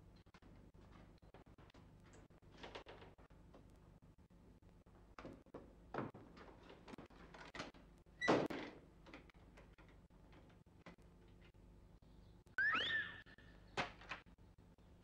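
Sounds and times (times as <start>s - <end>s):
old film crackle and hum: 0.0s - 12.6s
door squeak: 12.6s - 13.3s.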